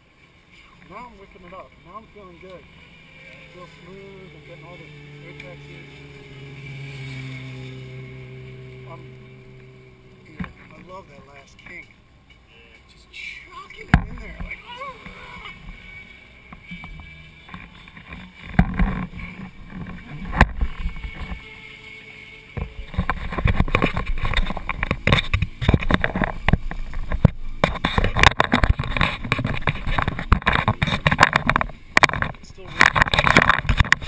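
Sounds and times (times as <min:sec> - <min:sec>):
dense crackle: 0:22.6 - 0:34.0.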